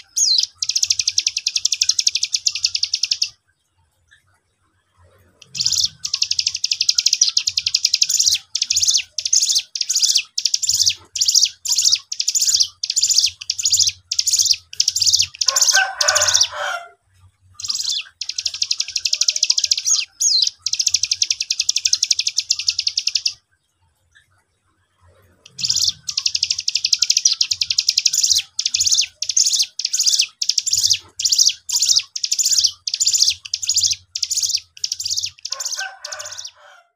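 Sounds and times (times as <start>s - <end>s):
bird singing rapid high notes: 25.5s - 36.6s.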